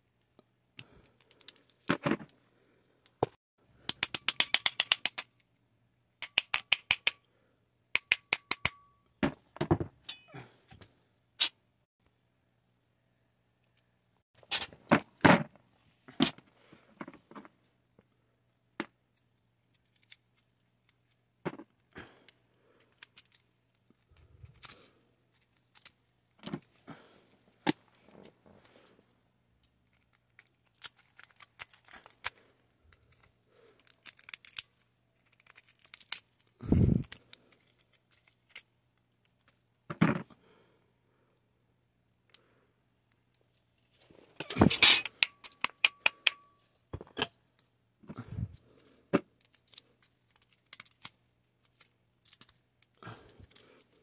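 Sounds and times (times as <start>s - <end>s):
metal parts clicking and scraping: 22.3s - 26.6s, 29.8s - 39.6s, 43.4s - 47.7s, 48.8s - 54.0s.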